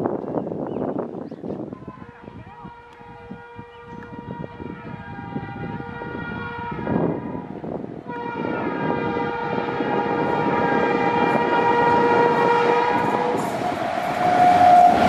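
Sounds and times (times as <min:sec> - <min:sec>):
train horn blasts: 0:02.0 - 0:15.0
train wheels rumbling on rails: 0:06.8 - 0:15.0.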